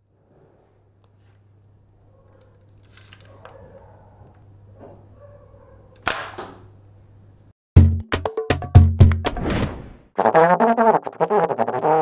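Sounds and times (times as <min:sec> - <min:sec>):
plastic toy bow snaps: 0:06.0 - 0:06.7.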